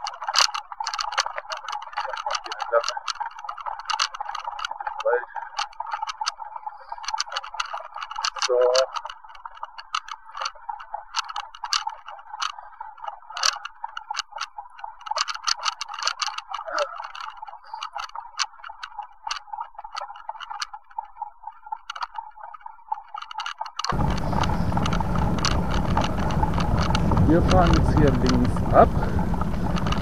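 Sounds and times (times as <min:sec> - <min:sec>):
bicycle clicking and rattling: 0:00.0 - 0:30.0
wind noise on microphone: 0:23.9 - 0:30.0.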